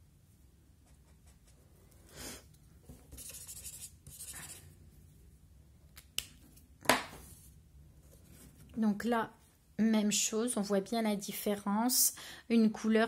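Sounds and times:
pen tip scratching on paper: 0:03.1 - 0:04.6.

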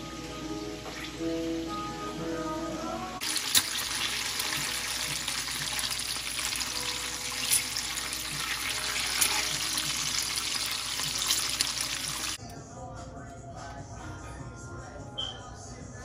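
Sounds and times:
bacon sizzling in a frying pan: 0:03.2 - 0:12.4.

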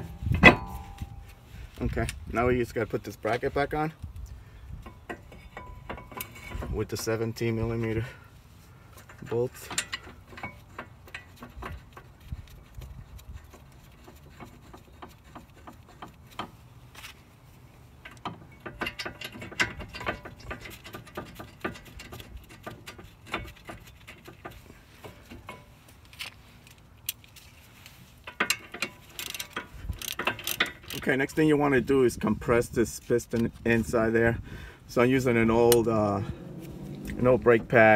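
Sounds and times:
metal bolts clinking: 0:00.0 - 0:01.4, 0:04.8 - 0:07.7, 0:08.9 - 0:12.1, 0:18.0 - 0:26.3, 0:28.2 - 0:31.4
hand ratchet clicking: 0:28.3 - 0:31.0.

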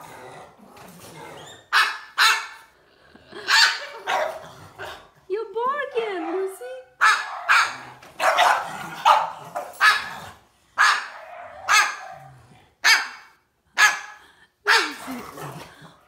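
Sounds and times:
cockatoo imitating dog bark: 0:01.6 - 0:02.7, 0:06.9 - 0:10.2, 0:10.8 - 0:14.1, 0:14.7 - 0:15.2.

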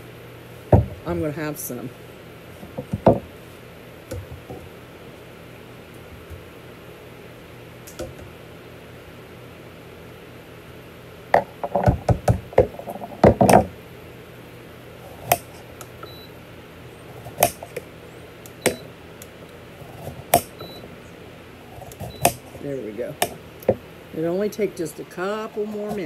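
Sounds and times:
objects knocking on a table: 0:11.4 - 0:13.7.

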